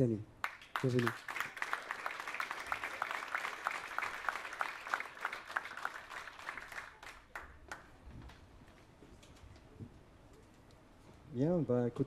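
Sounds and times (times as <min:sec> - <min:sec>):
audience applauding: 0:00.4 - 0:08.0.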